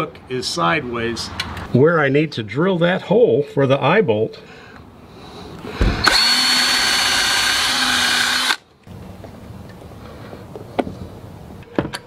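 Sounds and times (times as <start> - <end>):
power drill running: 6.0 - 8.6.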